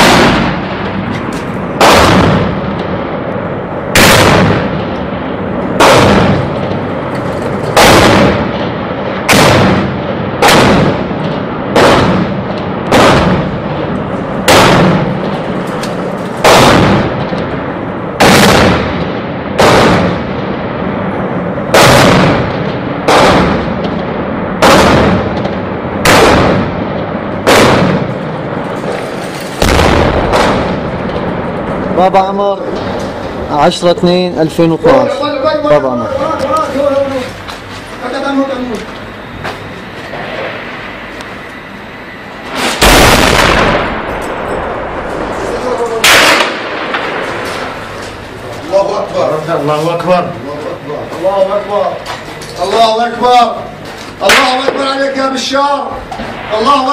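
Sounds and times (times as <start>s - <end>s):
loud gunshots with echo: 0.0s - 15.6s, 16.4s - 28.7s, 29.6s - 33.4s, 42.5s - 48.0s.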